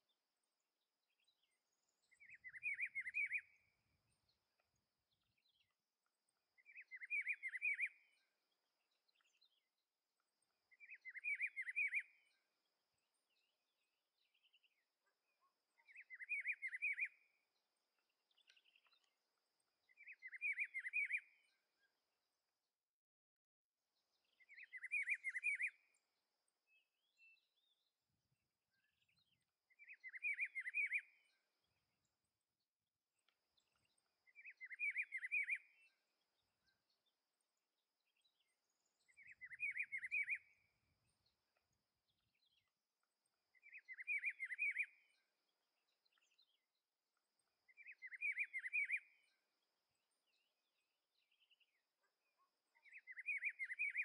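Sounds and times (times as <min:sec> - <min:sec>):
bird whistling song: 0:01.2 - 0:03.8, 0:06.6 - 0:08.3, 0:10.7 - 0:12.4, 0:15.8 - 0:17.4, 0:19.8 - 0:21.6, 0:24.2 - 0:26.0, 0:28.8 - 0:31.5, 0:33.6 - 0:36.0, 0:38.1 - 0:40.8, 0:42.4 - 0:46.6, 0:47.3 - 0:49.5, 0:52.7 - 0:54.0.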